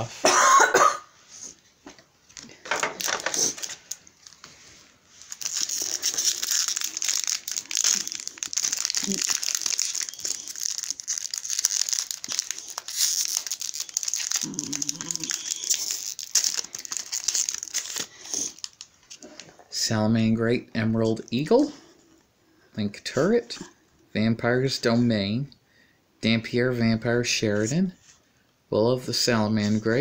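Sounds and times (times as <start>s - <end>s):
foil pack crinkling: 2.4s - 19.5s.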